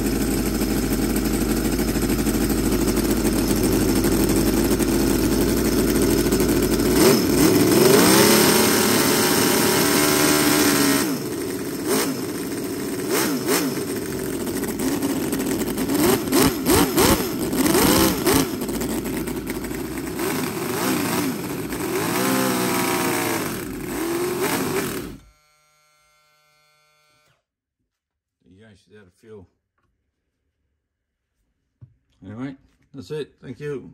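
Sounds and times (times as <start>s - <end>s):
model engine revving: 0.0s - 25.8s.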